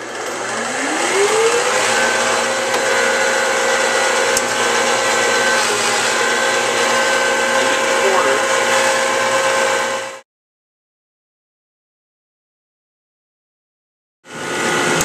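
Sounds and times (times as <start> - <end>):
electric motor whine: 0.0 - 10.2.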